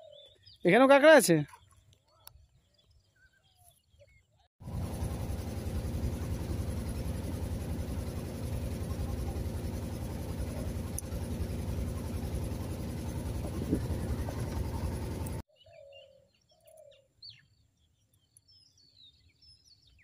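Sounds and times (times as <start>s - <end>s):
boat engine running: 4.6s - 15.4s.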